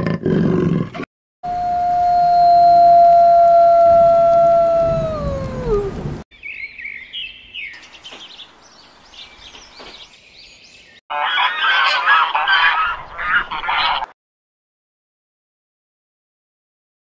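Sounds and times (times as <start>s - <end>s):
songbirds chirping: 6.3s - 14.1s.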